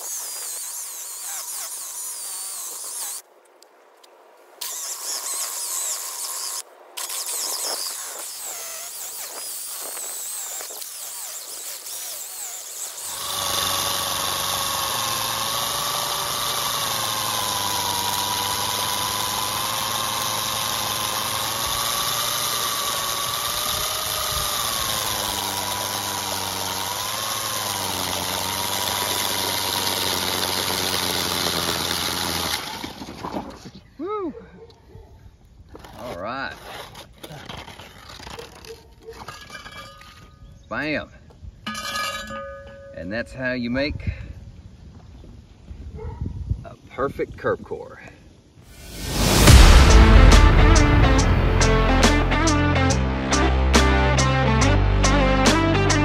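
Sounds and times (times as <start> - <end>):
core drill motor whining: 0.0 - 3.2, 4.6 - 33.8, 48.7 - 54.6.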